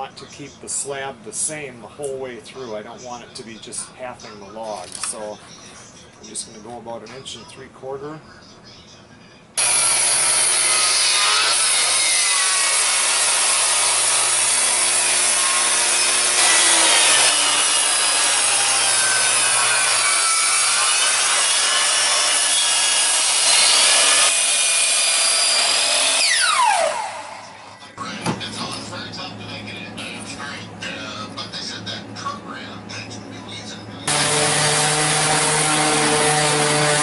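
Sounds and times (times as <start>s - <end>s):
table saw cutting log: 9.6s - 27.8s, 34.1s - 37.0s
motor winding down whine: 21.8s - 27.8s.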